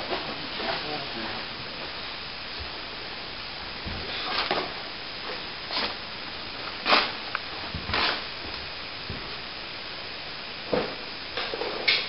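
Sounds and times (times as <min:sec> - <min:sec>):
trowel scraping plaster: 0:06.8 - 0:07.2.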